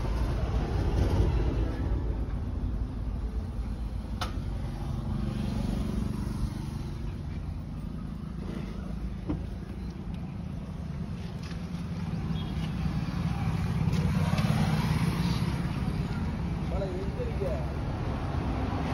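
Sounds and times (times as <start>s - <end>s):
vehicle engine rumble: 0.0s - 18.9s.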